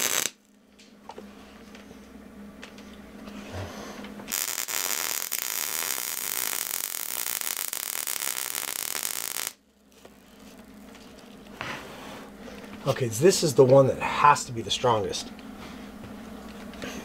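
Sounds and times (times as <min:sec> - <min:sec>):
arc welder crackling: 0:00.0 - 0:00.6, 0:04.3 - 0:11.5.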